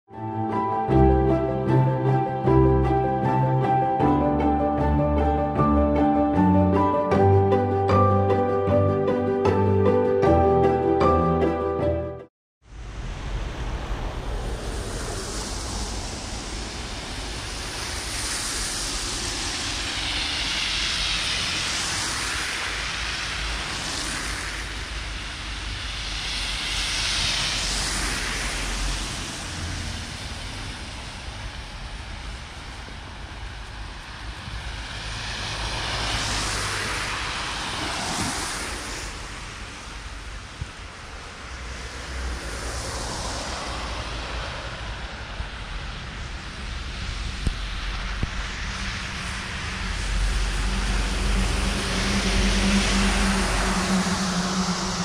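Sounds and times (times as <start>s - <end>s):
steady low rumble: 12.6s - 55.0s
vehicles passing: 12.7s - 55.0s.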